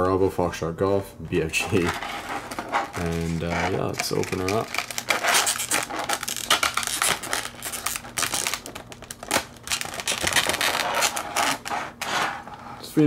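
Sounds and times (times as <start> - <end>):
plastic packaging crinkling: 1.6 - 12.4.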